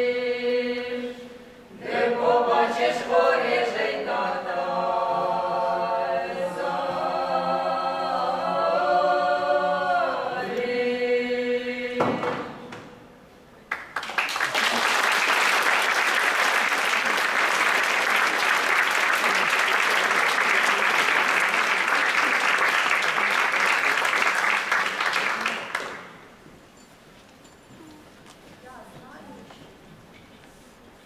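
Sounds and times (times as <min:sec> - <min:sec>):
choir singing a cappella: 0:00.0 - 0:13.1
audience applause: 0:13.7 - 0:26.2.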